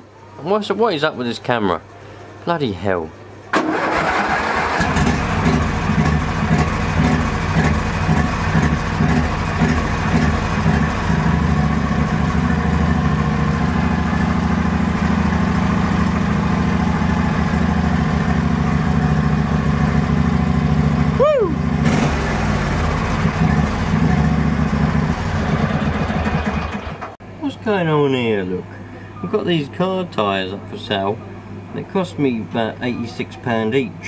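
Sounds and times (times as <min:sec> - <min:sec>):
lawn mower engine starting and running: 0:03.5 - 0:27.2.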